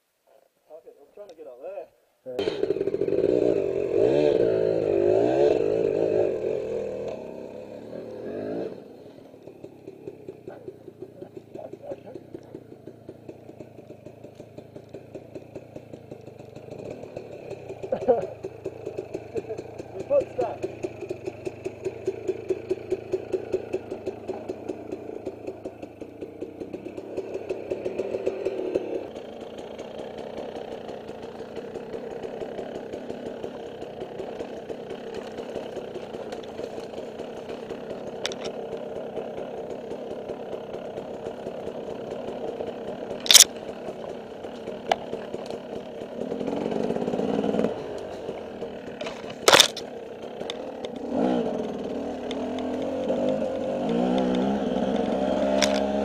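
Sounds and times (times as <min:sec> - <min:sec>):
dirt bike engine: 0:00.0 - 0:56.0
sharp cracks: 0:29.1 - 0:56.0.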